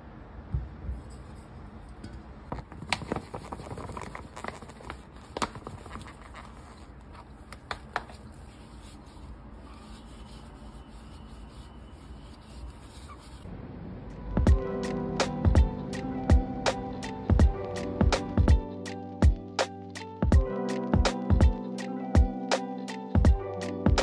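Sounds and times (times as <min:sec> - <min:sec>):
powder shaken from cardboard box: 0:02.6 - 0:06.9.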